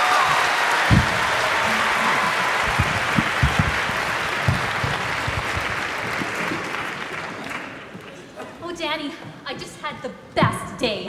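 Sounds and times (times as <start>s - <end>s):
audience applauding: 0.0s - 8.3s
short low thumps: 0.3s - 6.6s.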